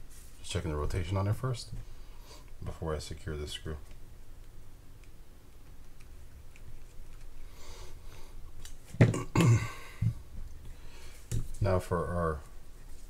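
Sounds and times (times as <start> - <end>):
man clearing throat: 9.0 - 10.0.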